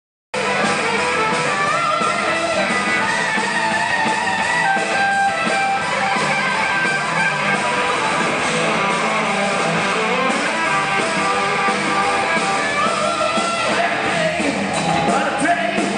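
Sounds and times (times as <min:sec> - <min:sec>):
lead guitar bending pitch: 0:00.4 - 0:15.2
live rock band playing: 0:00.4 - 0:15.9.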